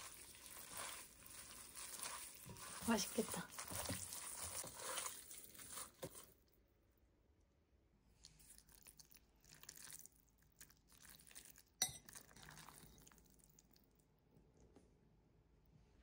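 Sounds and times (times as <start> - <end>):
faint rustling of noodles: 0.0 - 6.9.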